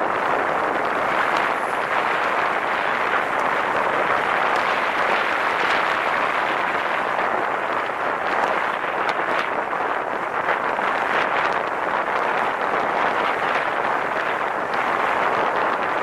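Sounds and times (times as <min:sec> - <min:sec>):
road noise: 0:00.0 - 0:09.4
faint crackles: 0:00.0 - 0:16.0
wind rushing over microphone: 0:00.0 - 0:16.0.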